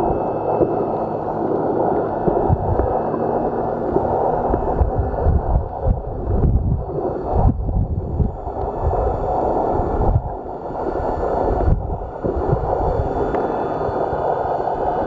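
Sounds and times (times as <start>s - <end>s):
underwater churning and gurgling: 0.0s - 15.0s.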